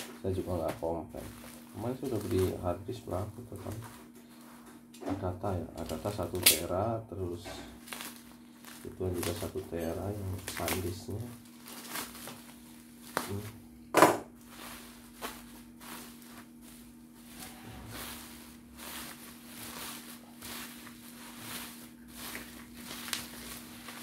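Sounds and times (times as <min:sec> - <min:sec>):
bubble wrap rustling and crackling: 0:00.0 - 0:13.7, 0:14.4 - 0:24.0
faint steady hum: 0:00.0 - 0:24.0
bubble wrap snap: 0:06.2 - 0:06.8, 0:07.8 - 0:09.5, 0:10.2 - 0:13.5, 0:18.8 - 0:24.0.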